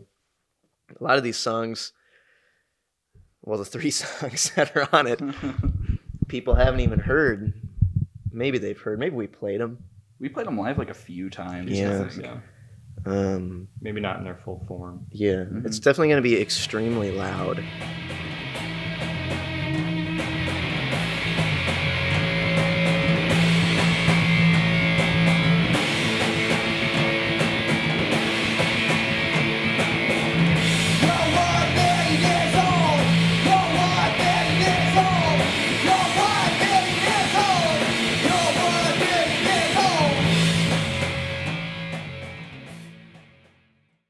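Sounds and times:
electric bass: 5.3s - 8.4s, 11.5s - 15.5s, 16.4s - 43.4s
drums with cymbals: 17.7s - 42.9s.

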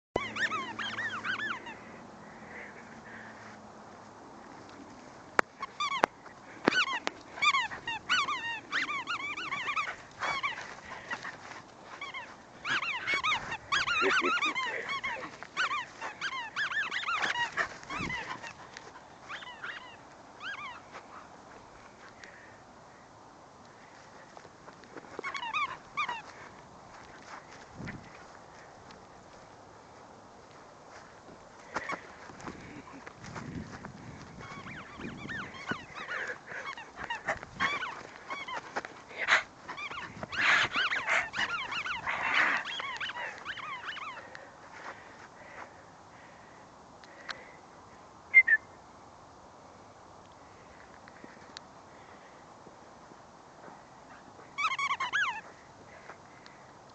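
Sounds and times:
dog yipping: 0.2s - 1.9s, 5.6s - 21.3s, 25.1s - 26.5s, 33.6s - 44.3s, 54.1s - 55.5s.

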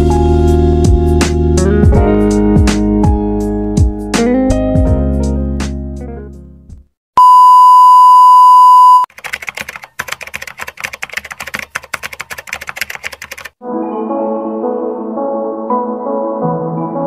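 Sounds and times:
music: 0.0s - 6.9s, 13.6s - 17.0s
high steady beep: 7.2s - 9.1s
keyboard typing clicks: 9.1s - 13.6s.

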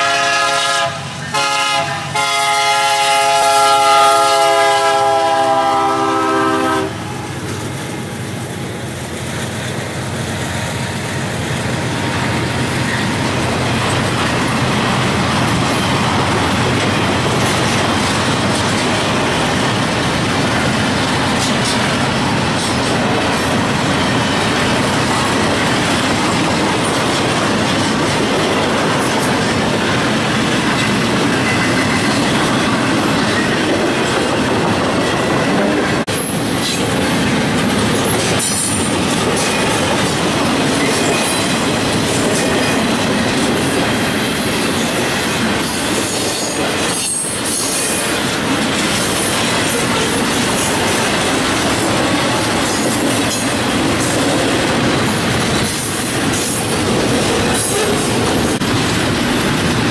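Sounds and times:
steel wheels on rail: 0.0s - 59.9s.

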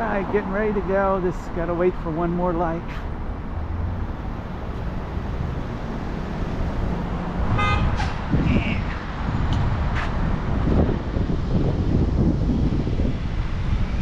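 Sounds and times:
traffic rumble: 0.0s - 14.0s
car horn beep: 7.5s - 8.0s.

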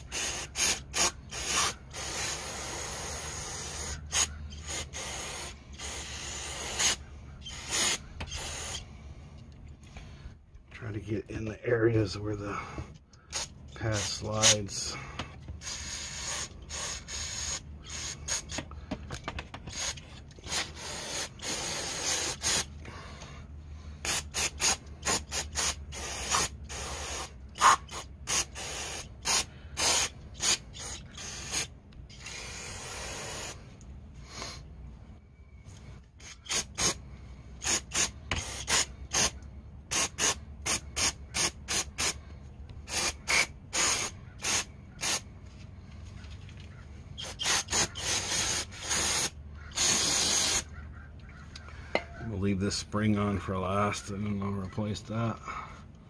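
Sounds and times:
aerosol spray hissing: 0.0s - 8.8s, 15.6s - 18.6s, 24.1s - 33.6s, 42.9s - 45.2s, 47.2s - 50.7s.

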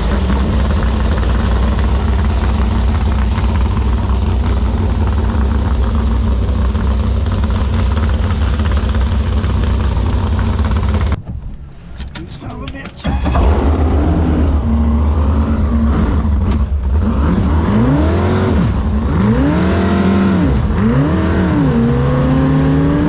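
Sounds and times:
boat engine idling: 0.0s - 11.7s.

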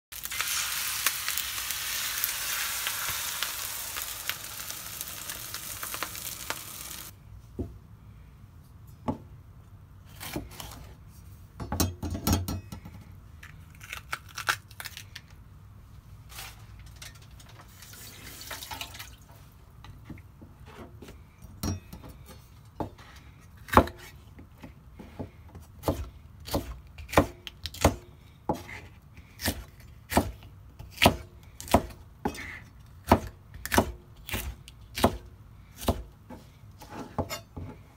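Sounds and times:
egg sizzling on hot platter: 0.1s - 7.1s
tearing pepper by hand: 13.4s - 15.4s.

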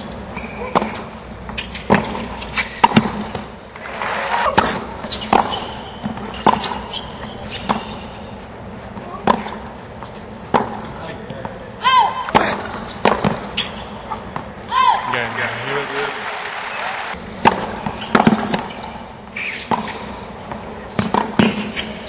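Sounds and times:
stadium crowd noise: 3.7s - 5.0s, 14.6s - 17.8s.

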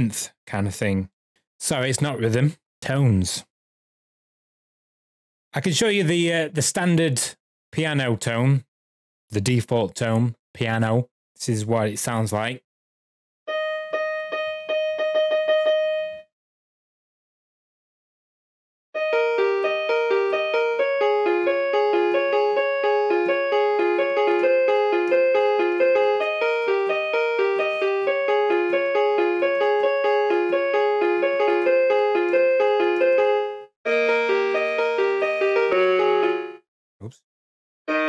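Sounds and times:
electronic keyboard arpeggio: 13.5s - 16.3s, 19.0s - 36.6s.

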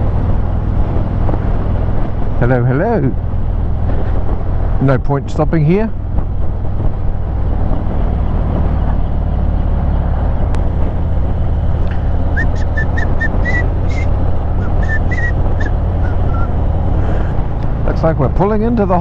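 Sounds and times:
wind noise: 0.0s - 18.4s
motorcycle engine rumble: 0.0s - 19.0s
short high chirps: 12.4s - 16.5s.

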